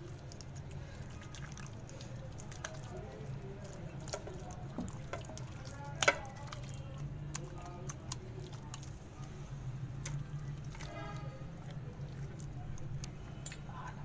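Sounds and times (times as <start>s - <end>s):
hand squishing wet marinade into chicken: 0.0s - 14.0s.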